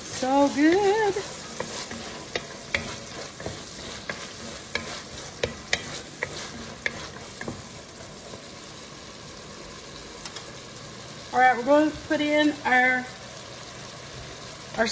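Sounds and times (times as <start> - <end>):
vegetables sizzling in oil: 0.0 - 14.9
wooden spatula knocking pot: 1.5 - 7.7.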